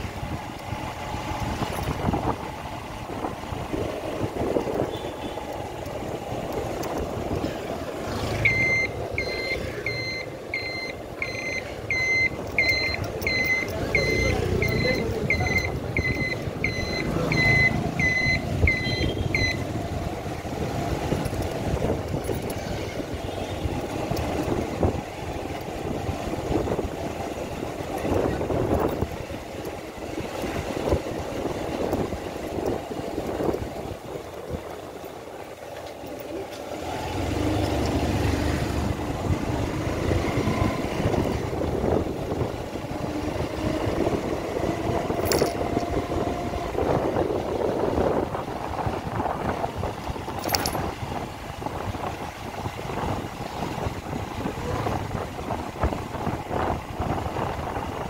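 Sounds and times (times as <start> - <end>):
road traffic noise: 0.0 - 58.0
short high electronic beeps: 8.5 - 19.6.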